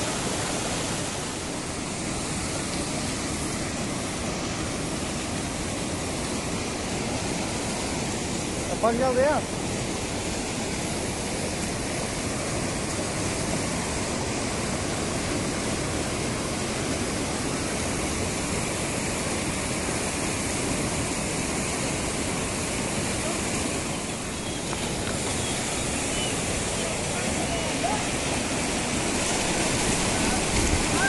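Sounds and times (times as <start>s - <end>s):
fast-flowing stream water rushing: 0.0s - 31.0s.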